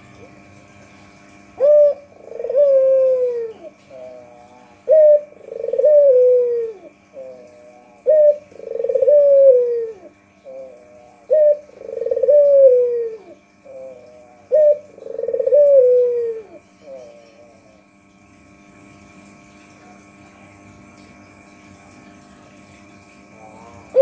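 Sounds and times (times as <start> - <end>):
faint steady hum: 0.0 - 24.0
dove cooing: 1.6 - 17.8, 23.2 - 24.0.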